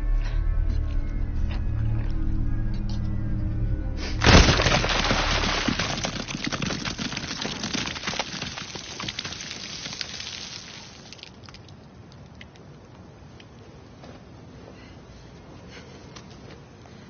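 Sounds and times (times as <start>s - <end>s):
wet gore burst: 4.2s - 11.3s
crackling spatter: 4.2s - 11.8s.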